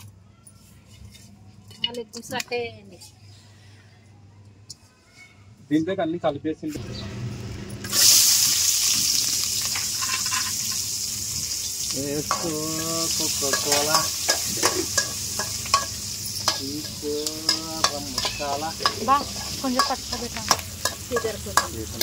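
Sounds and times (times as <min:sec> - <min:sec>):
food sizzling in hot oil: 0:07.0 - 0:22.0
spoon clicking and scraping a pan: 0:09.6 - 0:10.8, 0:12.2 - 0:22.0.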